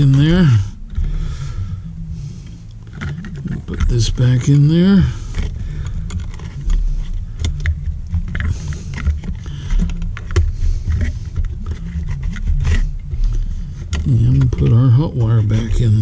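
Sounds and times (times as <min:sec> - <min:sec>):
low rumble: 0:00.0 - 0:16.0
wires clicking and scraping: 0:00.0 - 0:16.0.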